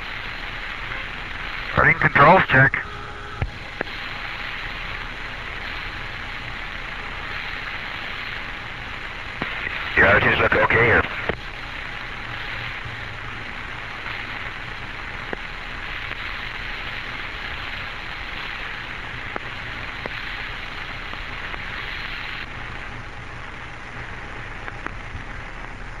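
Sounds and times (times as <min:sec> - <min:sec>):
radio hiss: 0:00.0 - 0:26.0
faint clicks: 0:11.2 - 0:11.4.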